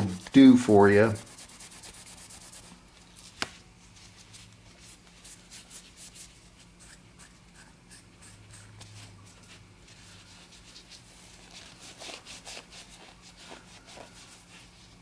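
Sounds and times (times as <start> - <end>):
cloth rubbing on pipe bowl: 3.8 - 15.0.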